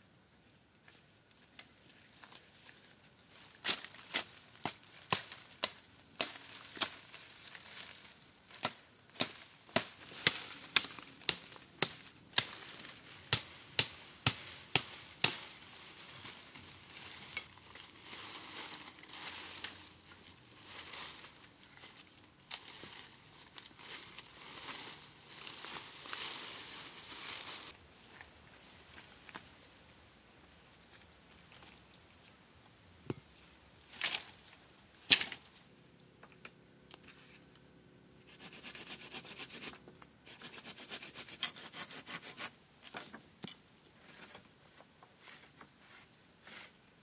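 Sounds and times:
rustling and crunching: 1.4s - 29.6s, 33.4s - 37.6s.

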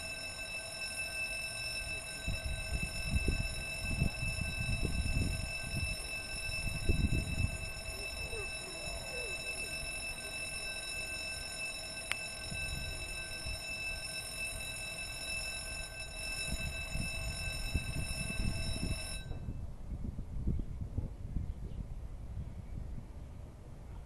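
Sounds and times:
wind rumble on microphone: 2.2s - 8.5s, 12.5s - 13.6s, 16.3s - 24.0s
high-pitched electronic tone: 2.2s - 10.6s.

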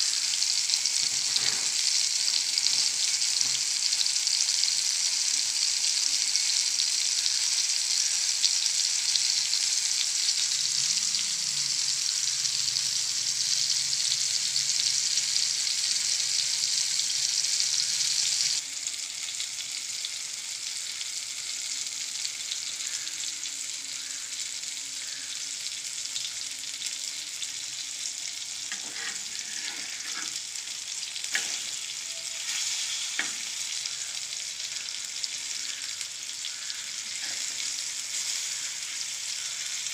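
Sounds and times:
fish sizzling in hot oil: 0.0s - 39.9s
metal spatula scraping a pan: 1.0s - 1.8s, 28.7s - 30.6s, 31.2s - 33.6s.

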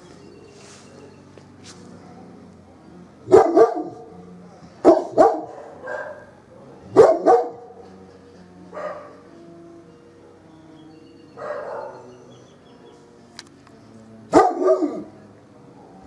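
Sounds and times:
dog barking: 3.3s - 4.1s, 4.8s - 7.7s, 8.7s - 9.2s, 11.4s - 12.1s, 14.3s - 15.1s.

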